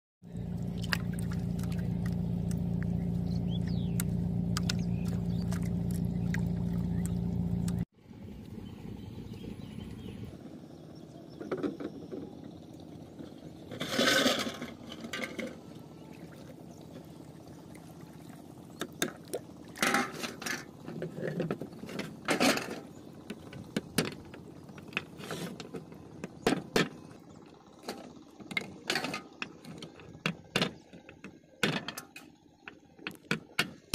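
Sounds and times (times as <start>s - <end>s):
steady low hum: 0.2s - 33.9s
water sloshing and splashing: 0.3s - 7.9s, 11.1s - 33.9s.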